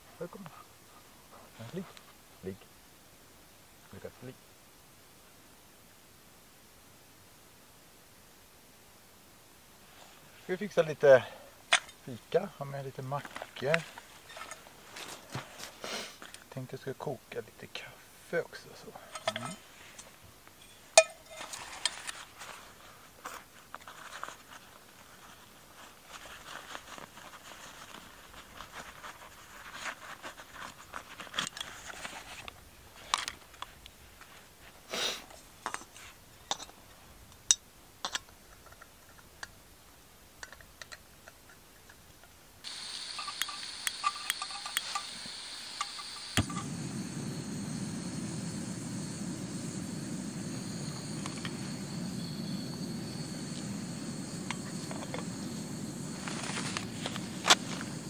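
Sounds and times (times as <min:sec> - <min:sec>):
gas stove hiss: 0:09.9 - 0:22.2, 0:34.9 - 0:35.4, 0:42.6 - 0:58.0
metal pot and lid clinking: 0:20.6 - 0:21.5
gas flame burning: 0:42.6 - 0:58.0
stove igniter click: 0:42.7 - 0:52.5.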